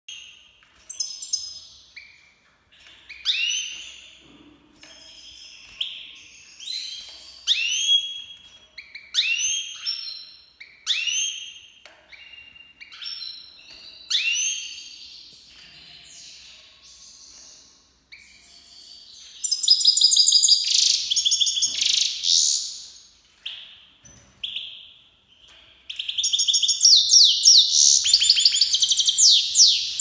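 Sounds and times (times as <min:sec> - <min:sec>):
goldfinch singing: 0:25.4 - 0:30.0.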